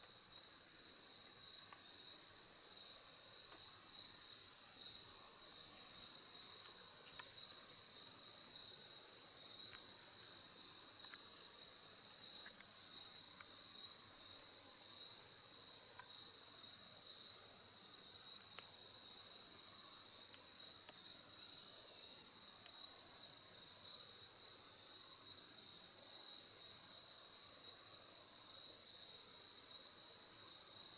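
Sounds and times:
insects trilling: 0.0 - 30.9
faint ticks: 1.6 - 1.9, 6.4 - 7.5, 9.6 - 10.0, 10.9 - 11.3, 12.3 - 13.6, 15.9 - 16.2, 18.4 - 18.8, 20.2 - 21.2, 22.5 - 22.8.

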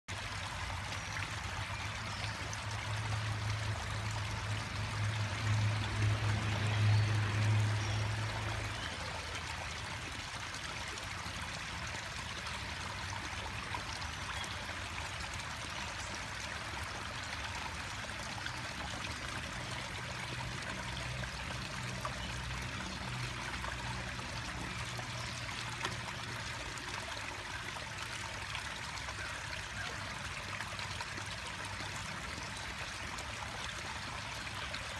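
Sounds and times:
water trickling into pond: 0.1 - 34.9.

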